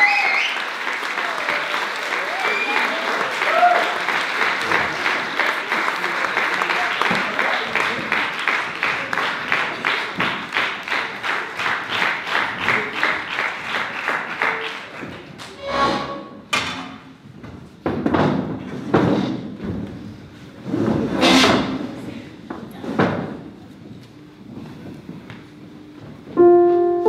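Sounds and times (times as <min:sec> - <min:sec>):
audience clapping in unison: 0:00.0 - 0:15.6.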